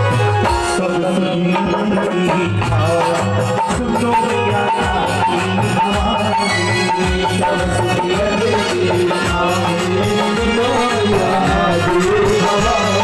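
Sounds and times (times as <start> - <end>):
dholak drum beating: 0.0 - 13.0
harmonium and keyboard chords: 0.0 - 13.0.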